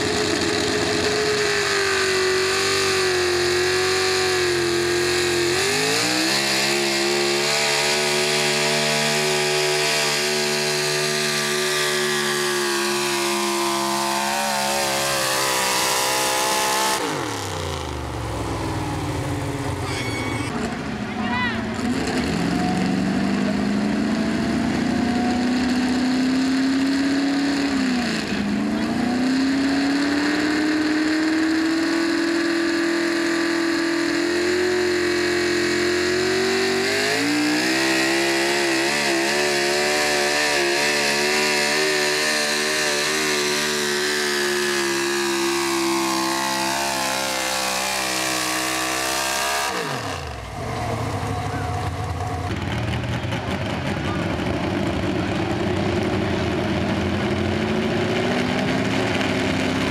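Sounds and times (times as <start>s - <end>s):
truck engine at full throttle: 0.0s - 59.9s
lower engine idling: 50.2s - 57.3s.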